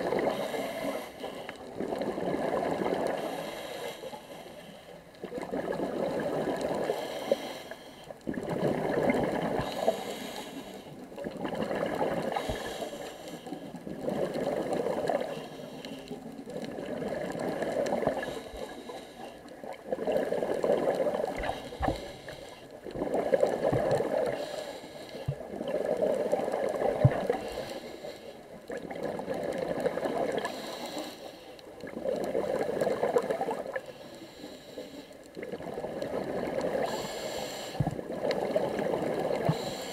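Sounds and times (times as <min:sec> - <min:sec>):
underwater regulator breathing: 0:00.2 - 0:01.7, 0:03.0 - 0:05.1, 0:06.6 - 0:08.2, 0:09.4 - 0:11.0, 0:12.2 - 0:16.6, 0:17.7 - 0:19.6, 0:21.1 - 0:23.2, 0:23.9 - 0:25.5, 0:27.1 - 0:28.4, 0:30.3 - 0:31.7, 0:33.6 - 0:35.3, 0:36.5 - 0:38.0, 0:38.8 - 0:39.9.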